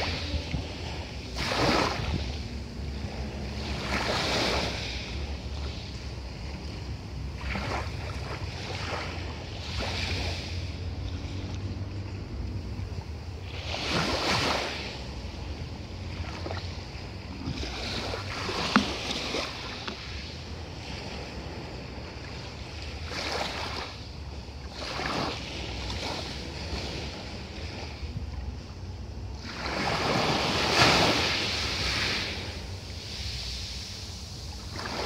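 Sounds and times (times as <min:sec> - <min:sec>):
steady low rumble: 0:00.0 - 0:30.0
waves washing on pebble beach: 0:00.0 - 0:35.0.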